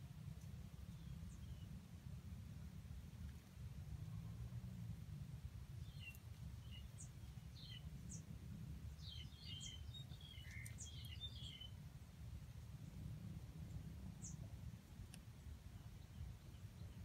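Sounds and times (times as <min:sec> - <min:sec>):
low steady rumble: 0:00.0 - 0:17.0
small birds chirping: 0:00.2 - 0:01.8, 0:05.7 - 0:17.0.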